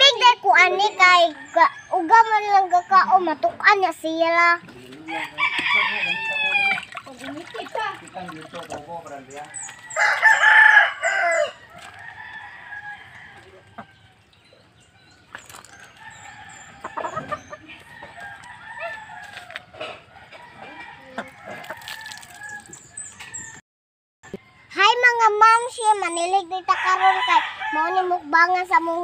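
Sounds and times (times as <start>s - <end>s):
chickens clucking: 4.6s - 22.5s
rooster crowing: 5.1s - 6.9s, 9.8s - 14.0s, 16.0s - 23.6s, 26.7s - 28.0s.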